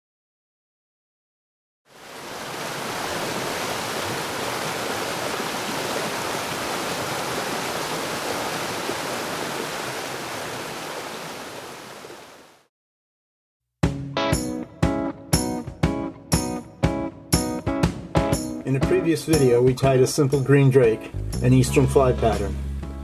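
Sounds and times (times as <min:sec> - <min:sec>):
stream water rushing: 0:01.9 - 0:12.7.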